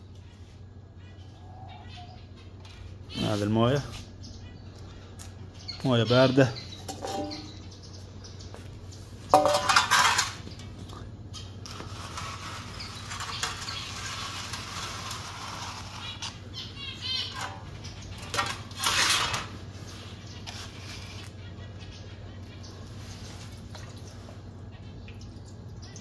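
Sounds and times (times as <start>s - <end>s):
bird chirps: 0.0s - 9.7s, 15.6s - 18.4s
water dish clattering: 6.8s - 7.6s, 9.3s - 10.4s.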